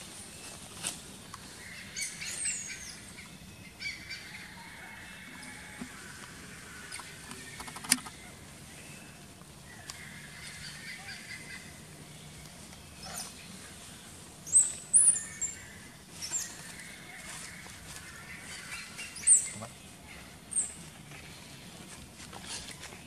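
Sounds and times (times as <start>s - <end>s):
distant birdsong: 0.0s - 23.0s.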